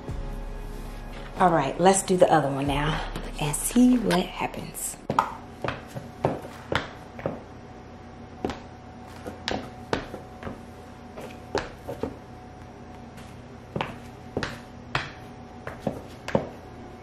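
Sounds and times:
high heels on wooden floor: 2.8s - 7.5s, 8.4s - 16.6s.

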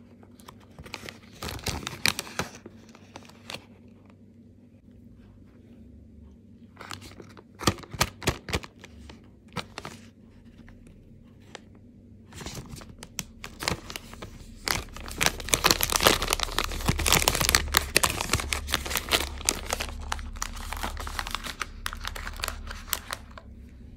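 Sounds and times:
plastic wrapper crinkling: 0.3s - 3.7s, 12.3s - 23.6s.

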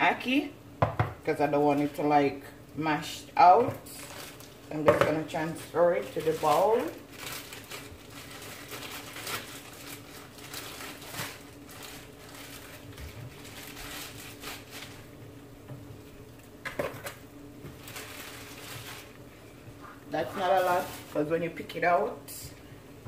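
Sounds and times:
steady low hum: 0.0s - 23.0s
fish rustling in plastic bowl: 3.8s - 4.8s, 5.6s - 15.2s, 17.0s - 21.6s.

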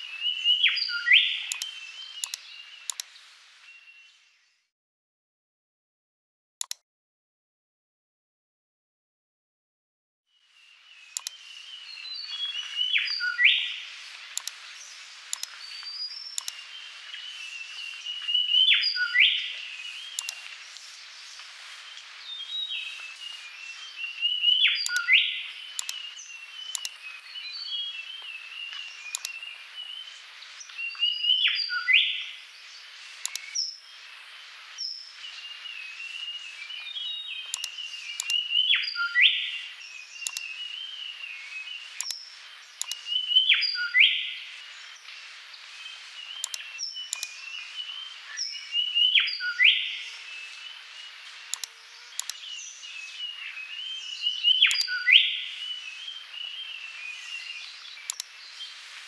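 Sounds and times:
birds chirping and twittering: 0.0s - 4.7s, 10.4s - 59.0s.

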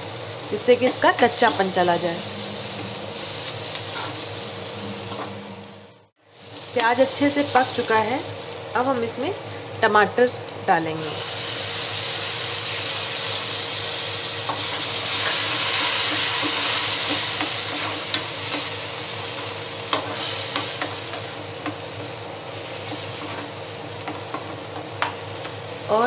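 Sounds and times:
tomato puree sizzling in hot oil: 6.2s - 9.4s, 10.6s - 26.0s.

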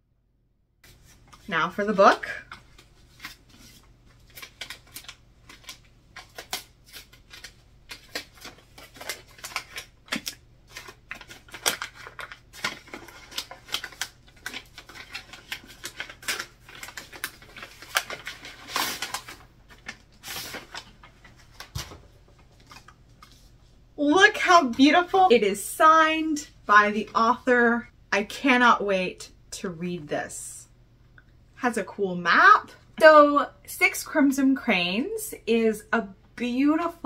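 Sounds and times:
paper packaging crinkling: 2.2s - 23.6s.

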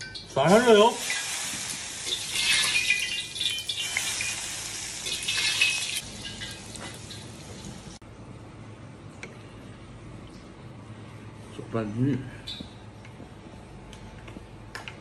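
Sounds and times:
hot oil sizzling and crackling: 0.0s - 8.0s.

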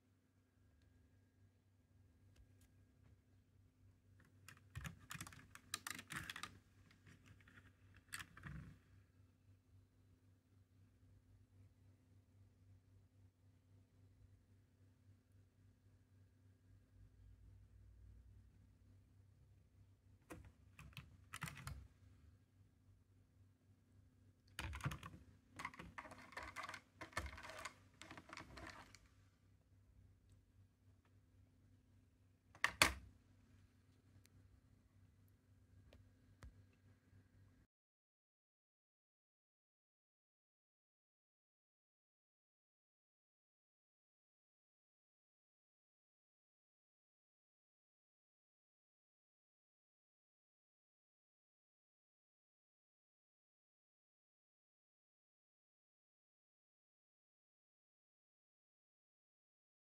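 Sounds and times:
plastic parts clicking and rattling: 24.6s - 29.1s.

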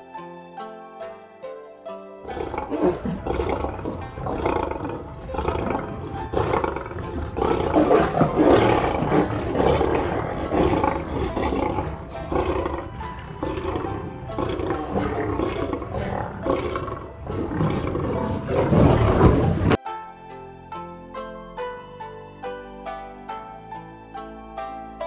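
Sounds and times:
soft background music: 0.0s - 25.0s
tiger roaring: 2.3s - 19.8s.

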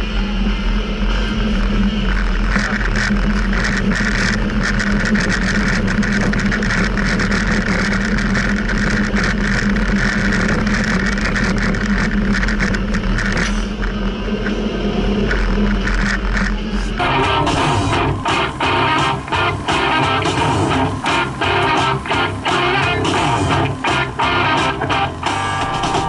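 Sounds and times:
engine and tyre drone: 0.0s - 26.0s
rattles and jolts on cobblestones: 0.1s - 26.0s.

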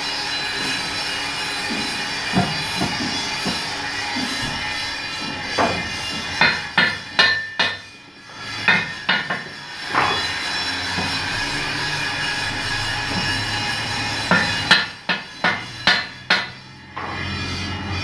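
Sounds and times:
hammer clanging on metal rim: 5.6s - 7.9s.

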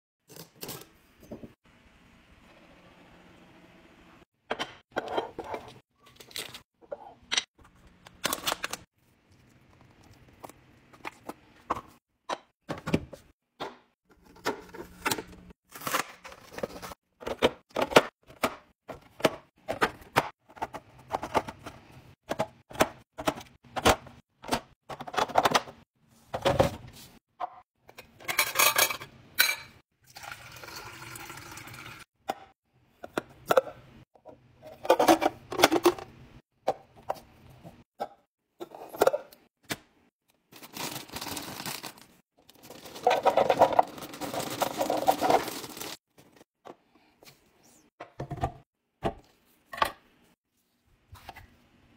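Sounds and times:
liquid pouring into cup: 30.1s - 32.0s
chips rustling from crinkly bag: 40.5s - 46.0s.

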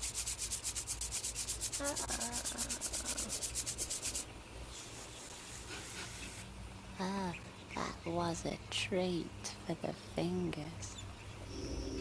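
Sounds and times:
fingers rubbing on metal bars: 0.0s - 6.4s.

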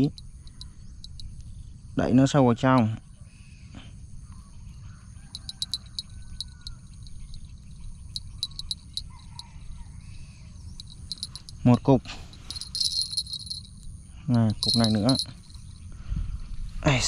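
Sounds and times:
sharp high ticks: 0.0s - 1.6s, 5.4s - 9.5s, 10.7s - 15.8s
insects chirping: 0.0s - 17.0s.

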